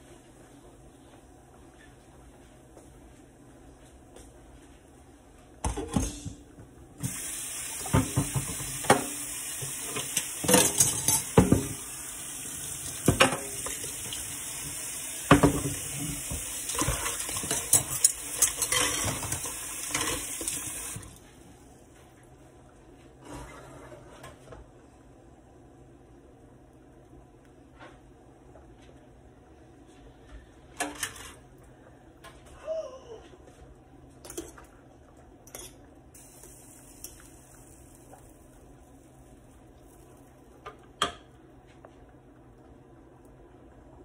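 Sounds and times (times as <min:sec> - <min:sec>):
tap water running into sink: 0:07.0 - 0:21.1
dishes clattering in sink: 0:07.8 - 0:11.8, 0:12.8 - 0:14.2, 0:15.2 - 0:21.0.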